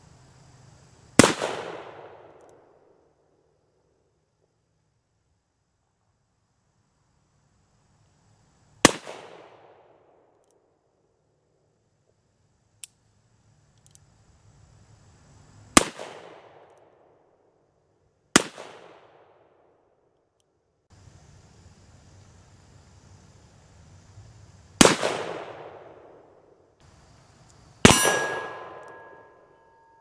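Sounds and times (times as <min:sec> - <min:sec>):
revolver shots ringing: 0:27.9 - 0:30.0.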